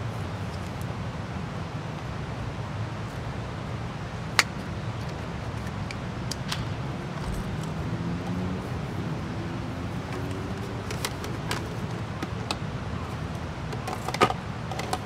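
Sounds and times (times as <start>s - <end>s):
plastic handling clicks: 10.0s - 12.6s, 13.7s - 15.0s.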